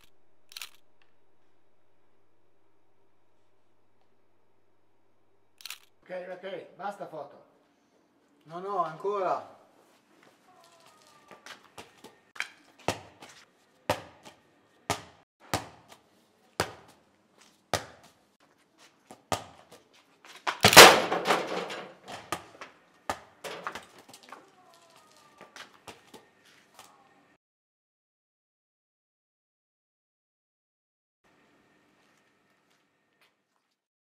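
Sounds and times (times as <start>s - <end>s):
football thudding on pavement: 12.8s - 16.0s, 16.6s - 17.0s, 17.7s - 18.2s, 19.1s - 19.8s, 20.4s - 24.4s
loud rattling crash: 20.6s - 22.1s.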